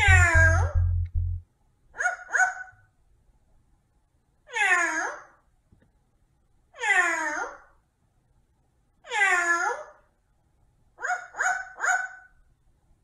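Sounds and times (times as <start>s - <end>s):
parrot mimicking cat meows: 4.5s - 5.3s, 6.8s - 7.7s, 9.0s - 9.9s.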